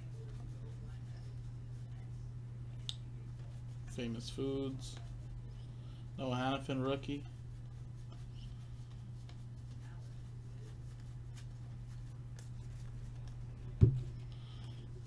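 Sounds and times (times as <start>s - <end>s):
loud thump: 13.8s - 14.1s.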